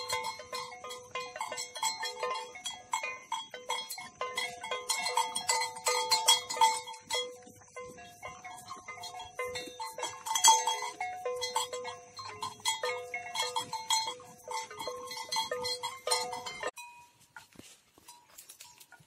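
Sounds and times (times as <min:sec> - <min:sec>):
animal neck bells clanking: 0:00.0 - 0:19.0.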